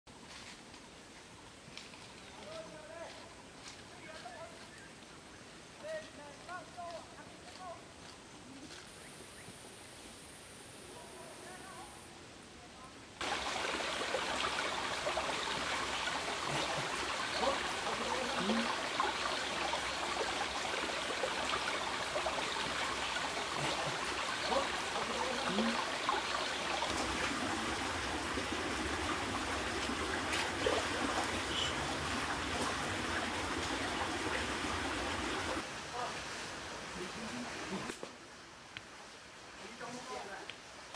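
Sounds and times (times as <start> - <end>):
small stream trickling and splashing: 13.2 - 40.9.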